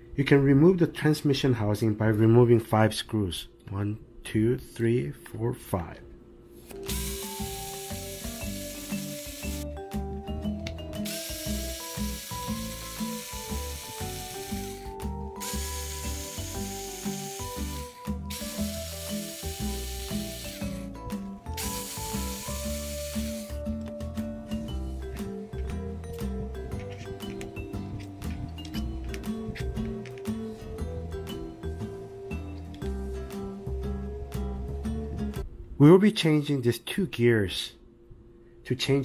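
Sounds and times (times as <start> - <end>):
background music with beat: 6.8 - 35.4.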